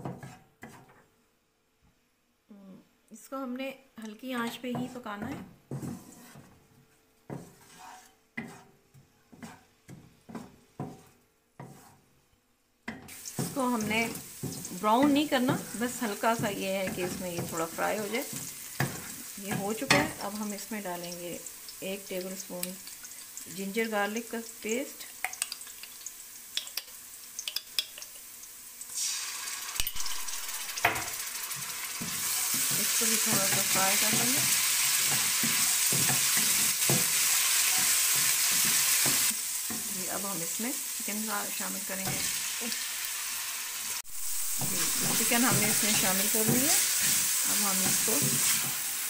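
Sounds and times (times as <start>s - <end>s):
spatula scraping wok: 0.0s - 1.1s, 4.4s - 12.1s, 12.9s - 21.1s, 29.8s - 49.0s
onion crackling in oil: 13.1s - 49.0s
loud sizzling hiss: 28.7s - 49.0s.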